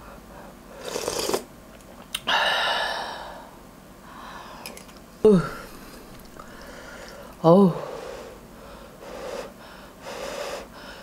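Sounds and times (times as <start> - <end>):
person slurping broth: 0.8 - 1.5
breathy exhale: 2.3 - 4.7, 5.4 - 11.0
person saying ah: 5.2 - 5.8, 7.4 - 8.0.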